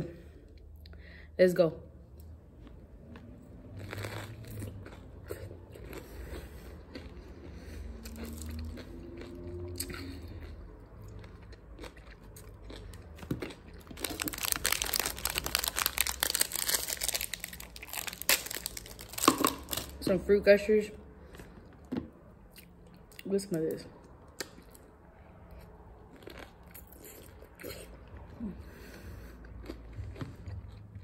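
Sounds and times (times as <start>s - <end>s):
crunching and chewing: 2.2s - 20.0s, 24.0s - 31.0s
plastic packet crinkling: 13.8s - 20.0s.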